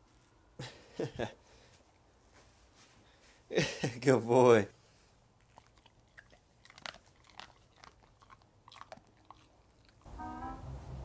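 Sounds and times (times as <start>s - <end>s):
dog chewing treat: 5.4s - 10.1s
music: 10.1s - 11.0s.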